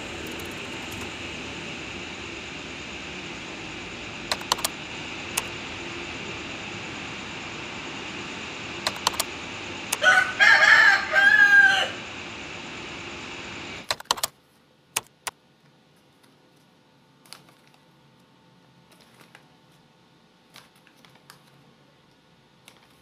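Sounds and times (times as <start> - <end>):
sharp clicks: 0.2 - 1.1, 4.3 - 5.5, 8.8 - 9.3, 13.8 - 14.3, 15.0 - 15.4
rooster crowing: 9.9 - 12.3.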